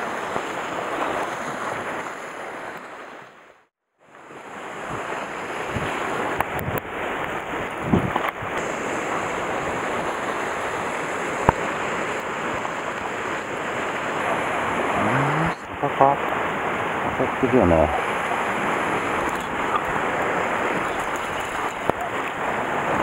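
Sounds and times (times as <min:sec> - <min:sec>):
waves washing on rocky shore: 0:00.0 - 0:03.2, 0:04.2 - 0:23.0
wind buffeting microphone: 0:04.8 - 0:13.2.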